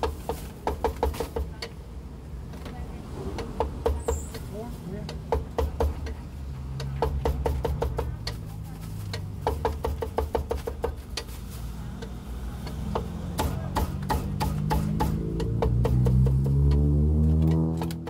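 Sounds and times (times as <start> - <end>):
cleaver chopping on wooden block: 6.8 - 8.4, 12.6 - 16.9.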